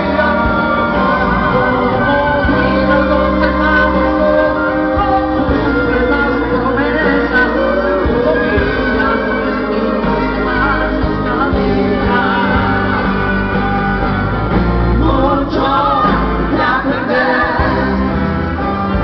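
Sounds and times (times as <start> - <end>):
live rock band playing ballad: 0.0 - 19.0
man singing lead: 0.0 - 19.0.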